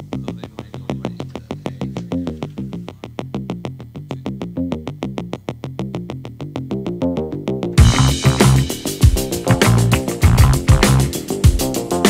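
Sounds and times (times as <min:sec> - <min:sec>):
electronic synthesizer music: 0:07.8 - 0:12.0.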